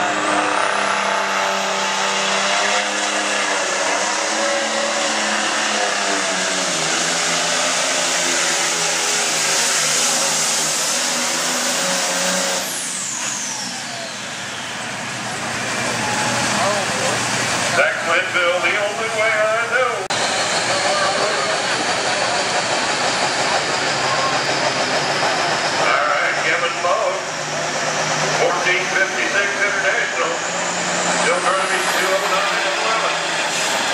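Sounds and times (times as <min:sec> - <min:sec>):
diesel tractor engine at full throttle: 0:00.0 - 0:33.9
high turbo whistle: 0:11.2 - 0:17.2.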